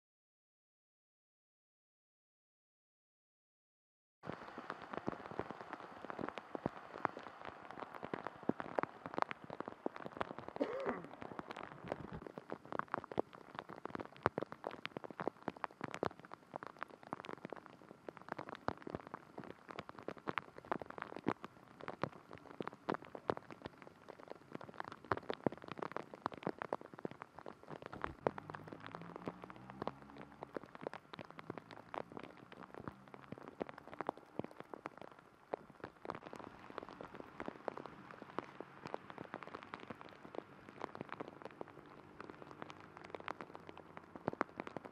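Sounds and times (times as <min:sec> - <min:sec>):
raindrops ticking close by: 0:04.2 - 0:44.9
steady rain: 0:04.2 - 0:44.9.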